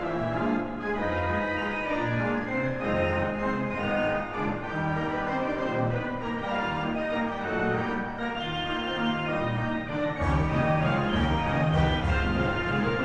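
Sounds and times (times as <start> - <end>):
instrumental background music: 0.0 - 13.0.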